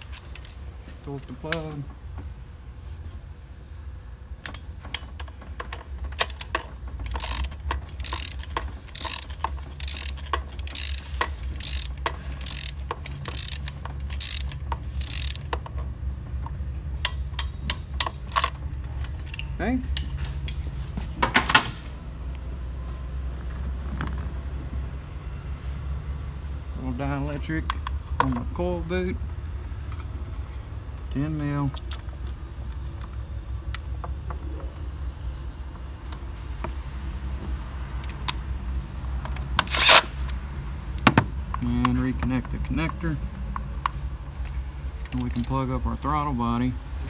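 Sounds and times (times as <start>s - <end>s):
ratchet wrench clicking: 4.9s - 15.8s.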